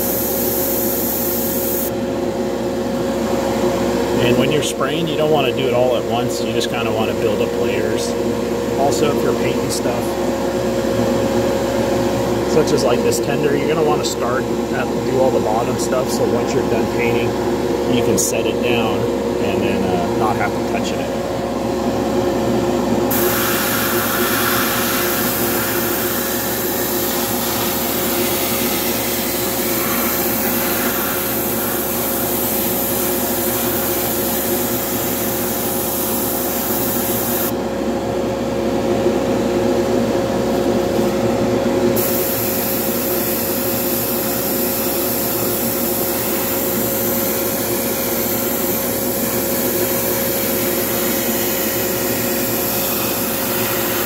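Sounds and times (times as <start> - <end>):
airbrush spraying air hiss: 0.0 - 1.9, 23.1 - 37.5, 42.0 - 54.0
exhaust fan humming: 0.0 - 54.0.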